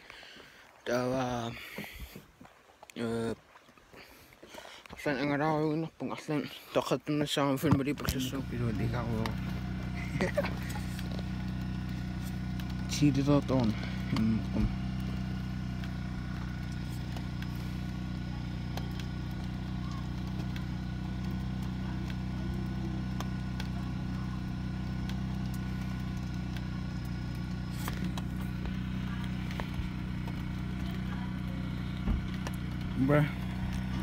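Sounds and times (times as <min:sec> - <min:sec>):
low steady hum: 0:07.6 - 0:34.0.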